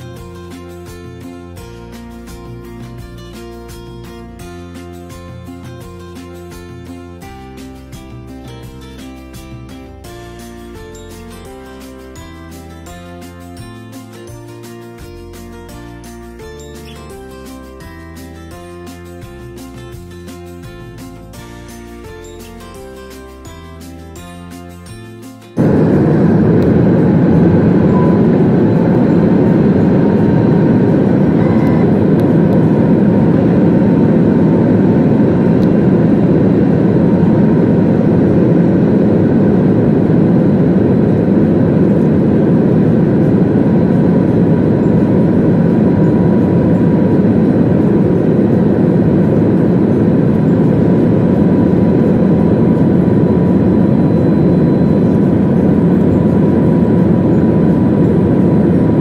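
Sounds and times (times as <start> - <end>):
jet engine and airflow rush: 25.3 - 59.0
faint whine: 25.6 - 59.0.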